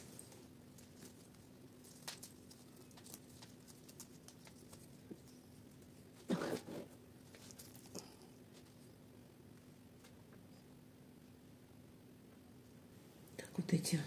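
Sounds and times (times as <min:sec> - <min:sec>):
leaves and stems rustling: 0:00.0 - 0:08.7.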